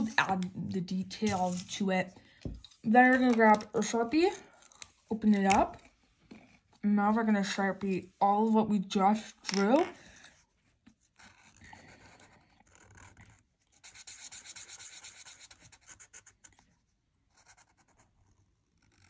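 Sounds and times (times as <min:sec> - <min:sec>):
marker scribbling on paper: 0:01.2 - 0:02.0, 0:11.1 - 0:16.6.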